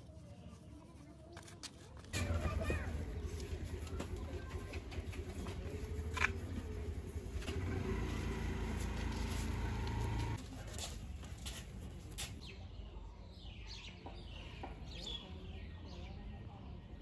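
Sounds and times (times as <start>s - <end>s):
engine humming: 2.1s - 10.4s.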